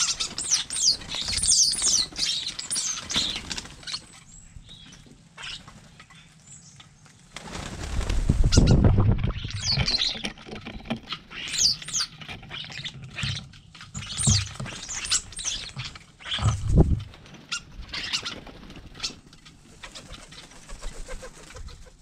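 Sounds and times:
starlings whistling and chattering: 0.0s - 7.0s, 8.5s - 10.3s, 11.0s - 19.2s
wings fluttering: 0.0s - 22.0s.

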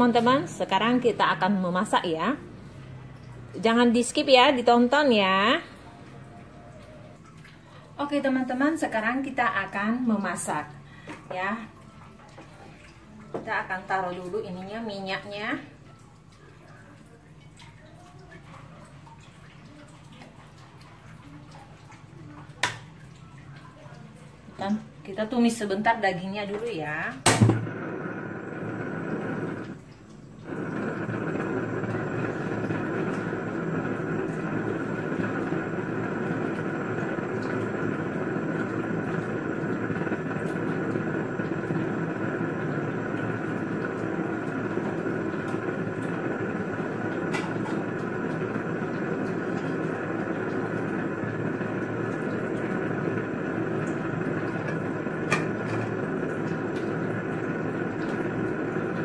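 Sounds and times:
gas stove burner rushing: 27.2s - 29.8s, 30.4s - 59.0s.

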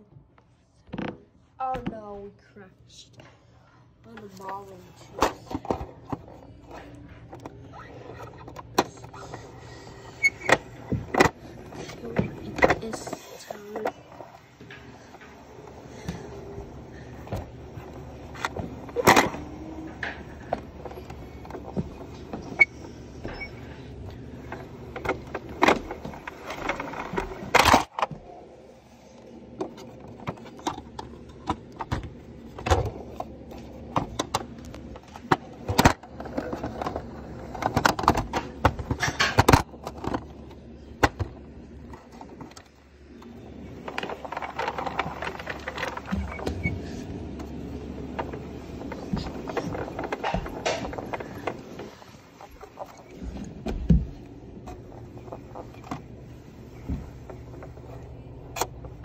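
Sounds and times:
plastic toy vehicle clicks and rattles: 43.7s - 46.1s.

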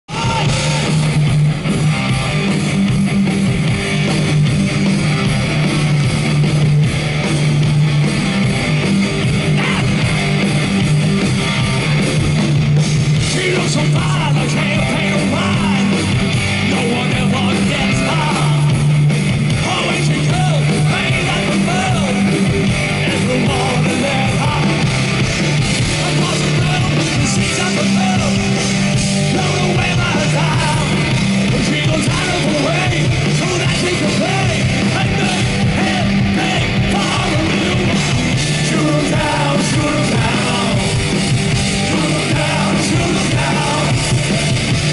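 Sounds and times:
heavy metal band playing: 0.0s - 44.9s
person singing: 23.0s - 24.8s.

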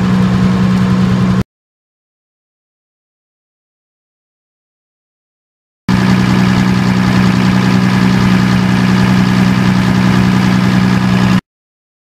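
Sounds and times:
diesel generator running: 0.0s - 1.4s, 5.9s - 11.4s.

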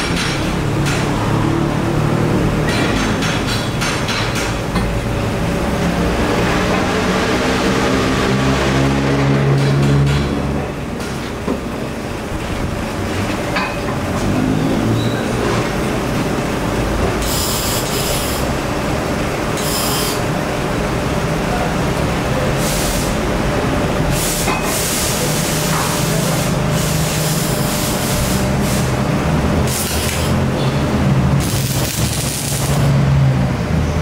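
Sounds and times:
arc welding hissing and crackling: 17.2s - 18.5s, 24.2s - 29.0s, 29.6s - 30.5s, 31.3s - 33.0s.

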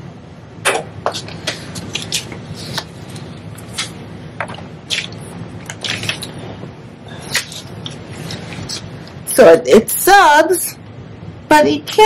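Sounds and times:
low steady hum: 0.0s - 12.0s
paper crackling and rustling: 1.1s - 6.4s, 7.2s - 9.0s.

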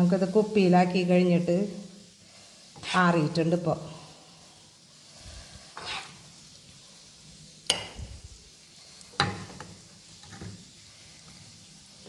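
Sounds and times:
spoon scraping pan: 2.7s - 3.2s, 5.7s - 6.4s, 9.2s - 10.7s.

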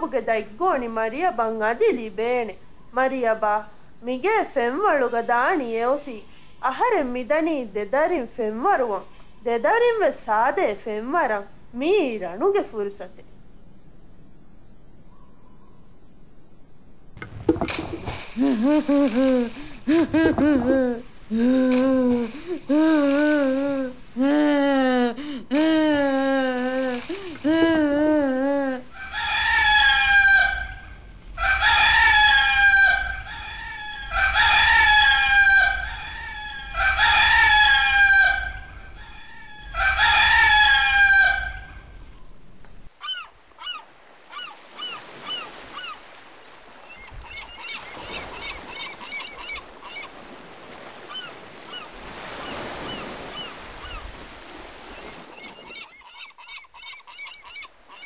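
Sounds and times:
rooster crowing: 28.9s - 41.8s.

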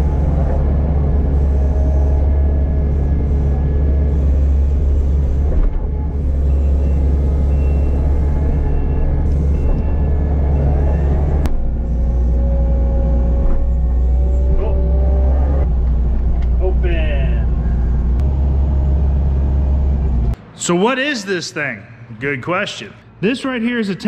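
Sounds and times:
loader engine running: 0.0s - 20.5s.

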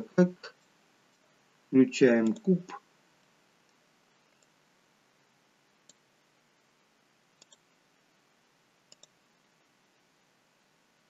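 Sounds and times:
computer mouse clicks: 2.2s - 2.5s, 3.2s - 4.6s, 5.8s - 6.1s, 7.4s - 7.7s, 8.9s - 9.2s.

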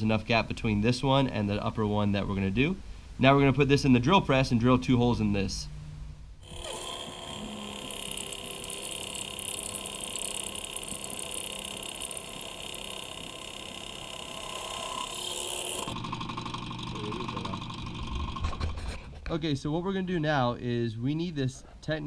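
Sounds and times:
drill press cutting metal: 6.4s - 18.8s.

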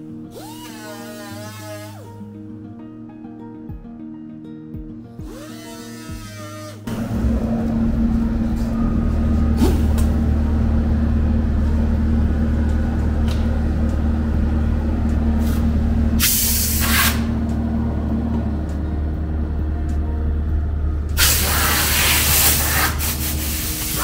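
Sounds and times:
air compressor humming: 0.0s - 2.3s, 5.2s - 24.0s
compressed air hiss: 16.2s - 17.4s, 21.2s - 24.0s.

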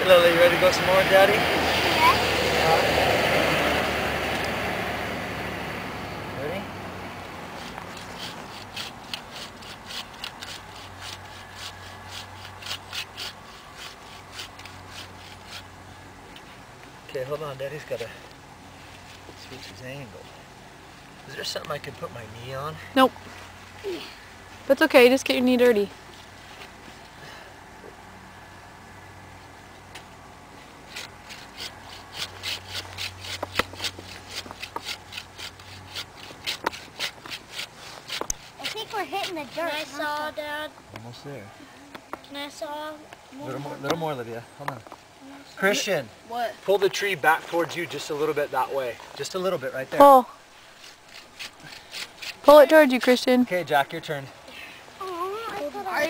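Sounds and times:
hand saw cutting tree trunk: 7.4s - 15.7s, 30.8s - 40.2s, 50.6s - 53.3s.

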